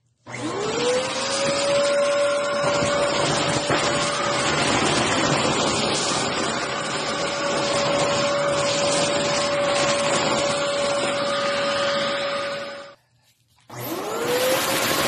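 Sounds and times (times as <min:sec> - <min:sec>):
vacuum cleaner whining: 0:00.0 - 0:13.0, 0:13.6 - 0:15.0.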